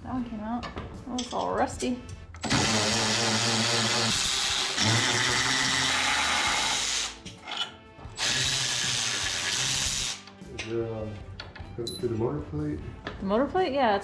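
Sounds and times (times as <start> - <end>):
handheld power tool running: 2.4 - 7.2, 8.2 - 10.2.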